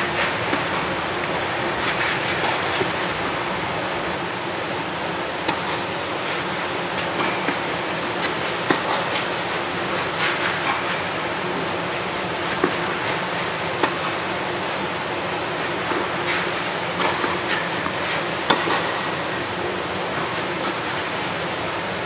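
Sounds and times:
tennis ball being struck: 0.5 - 0.8, 5.4 - 5.9, 8.6 - 9.0, 18.5 - 18.9.

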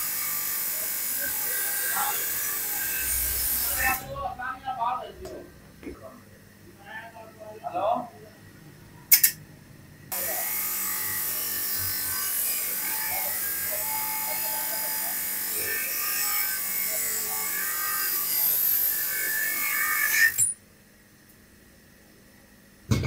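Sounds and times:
power tool motor whirring: 10.1 - 20.5.

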